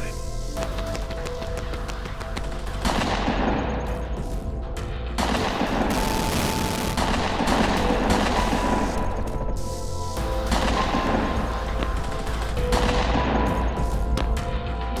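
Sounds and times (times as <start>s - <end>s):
film score: 0.0s - 15.0s
rapid gunfire: 2.6s - 4.0s, 5.2s - 9.0s.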